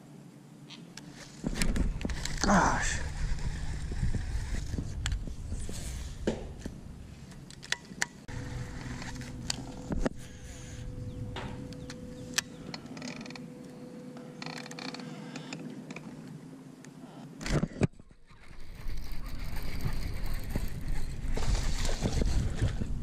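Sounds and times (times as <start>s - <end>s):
fishing reel clicking and whirring: 18.4s - 22.0s.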